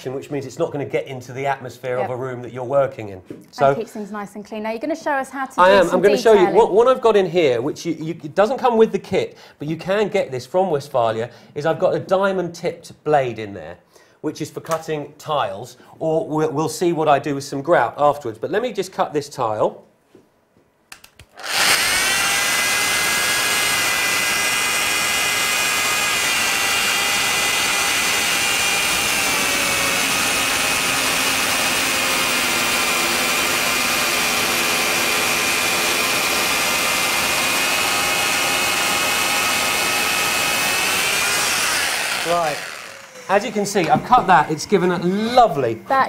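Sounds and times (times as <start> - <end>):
circular saw cutting tile: 21.3 - 44.4.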